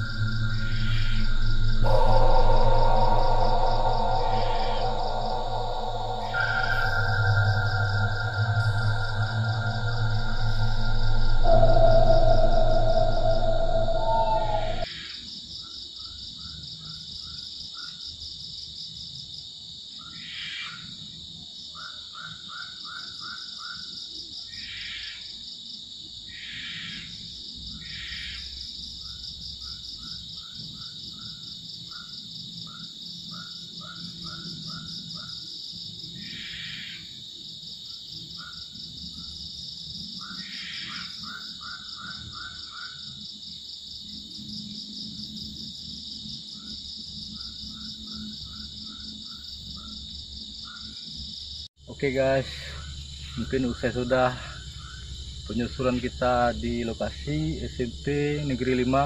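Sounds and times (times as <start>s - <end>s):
insects buzzing: 0.0s - 14.9s
short lower insect calls: 0.0s - 15.2s, 26.3s - 59.0s
crickets chirping trills: 0.0s - 59.0s.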